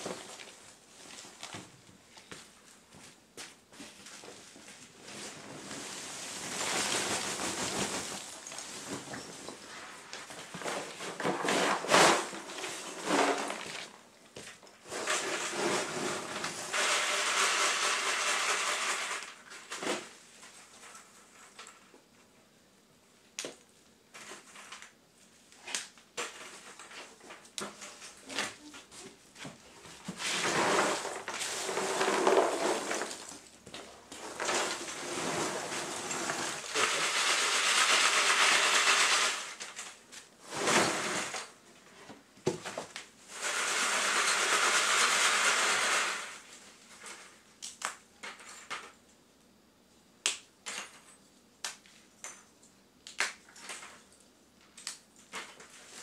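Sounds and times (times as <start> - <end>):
charcoal scooped and scraped: 14.8 - 18.3, 30.1 - 33.4, 34.1 - 37.1, 40.4 - 41.5.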